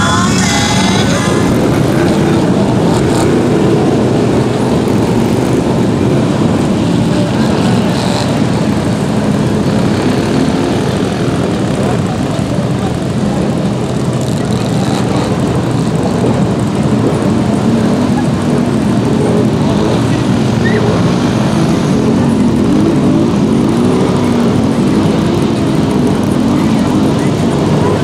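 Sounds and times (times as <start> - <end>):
engines revving under load: 0.0 - 28.0.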